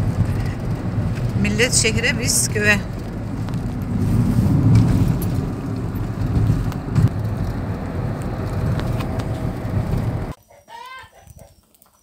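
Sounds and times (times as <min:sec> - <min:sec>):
car engine and tyre rumble: 0:00.0 - 0:10.4
car bump: 0:02.9 - 0:10.3.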